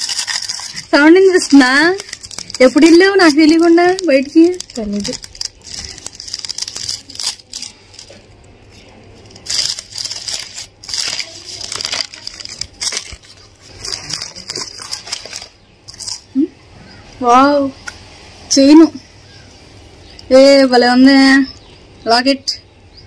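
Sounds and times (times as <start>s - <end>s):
wrapping paper crinkling and tearing: 0.0s - 16.3s.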